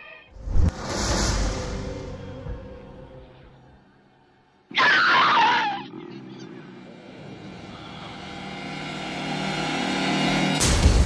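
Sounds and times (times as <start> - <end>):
loud rushing whoosh: 0.3 - 3.5
music: 0.4 - 4.7, 6.6 - 11.0.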